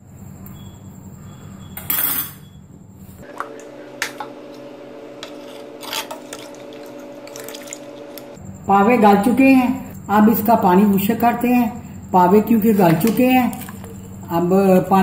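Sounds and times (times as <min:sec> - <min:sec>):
ladle stirring broth: 0:13.0 - 0:14.2.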